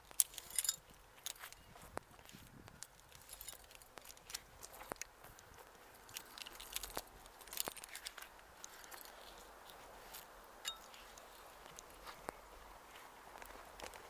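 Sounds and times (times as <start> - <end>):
climbing rope rustling and scraping: 0.0 - 14.0
metallic clink: 0.1 - 1.6, 3.1 - 3.9, 10.6 - 11.0.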